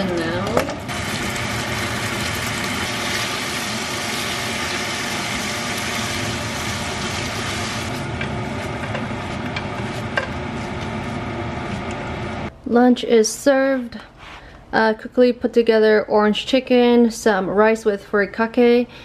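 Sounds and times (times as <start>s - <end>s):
food sizzling in frying pan: 0.0s - 12.5s
steady low hum: 3.6s - 12.7s.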